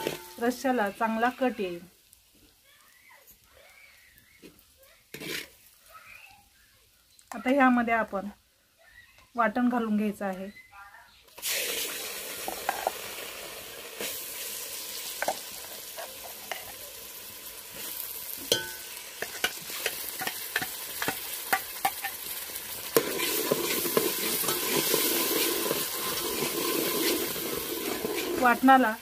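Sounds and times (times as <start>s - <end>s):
ladle scraping metal pot: 0.0s - 0.4s, 5.1s - 5.6s, 22.9s - 28.6s
paste sizzling in hot oil: 0.0s - 8.1s, 11.3s - 29.0s.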